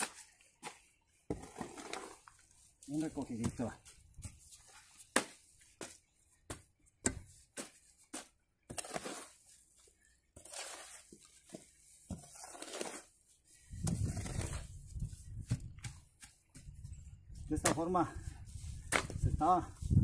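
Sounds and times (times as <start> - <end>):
hoe chopping into wet mud: 18.9 - 19.2.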